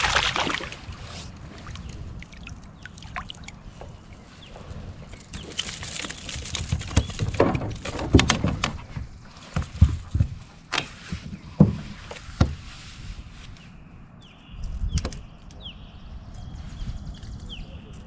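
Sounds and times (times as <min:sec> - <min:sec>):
knocks and thumps on plastic kayak: 0:06.3 - 0:12.6.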